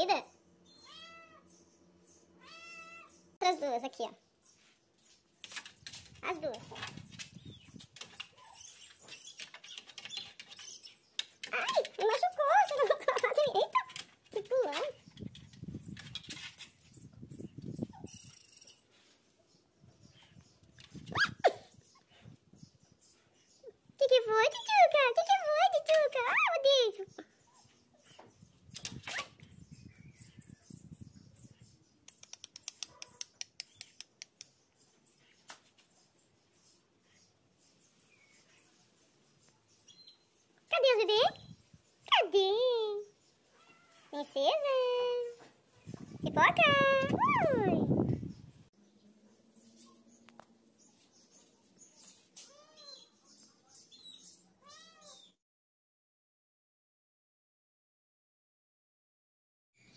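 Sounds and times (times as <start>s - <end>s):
cat meowing: 0.8s - 1.4s, 2.4s - 3.1s, 43.5s - 44.1s, 54.6s - 55.2s.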